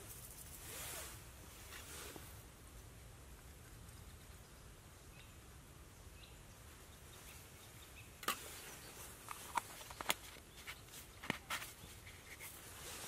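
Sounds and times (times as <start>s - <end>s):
plastic cup handled: 9.2s - 12.6s.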